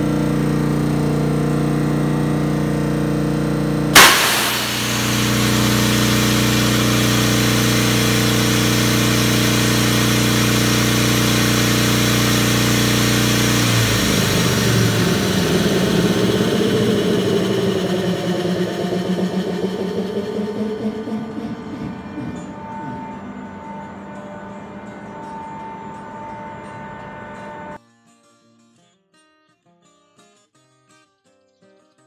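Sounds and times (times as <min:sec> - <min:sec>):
compressed air blast: 0:04.0 - 0:23.5
air rushing from valve: 0:04.0 - 0:26.5
air compressor humming: 0:04.0 - 0:27.8.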